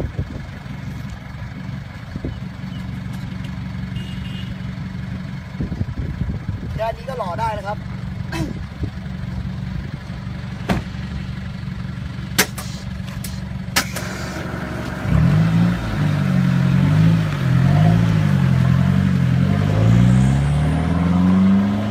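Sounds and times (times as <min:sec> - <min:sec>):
truck engine idling and revving: 0:00.0 - 0:21.9
car door shutting: 0:10.6 - 0:11.0.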